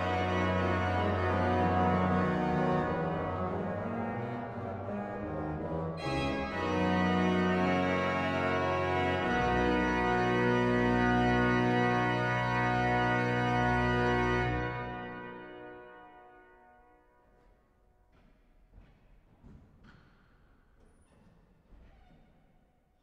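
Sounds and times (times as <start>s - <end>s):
pipe organ chords: 0.0s - 17.2s.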